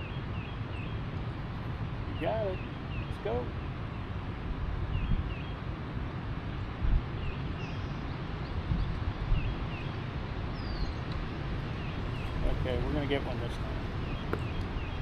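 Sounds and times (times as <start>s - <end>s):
wind buffeting microphone: 3.2s - 15.0s.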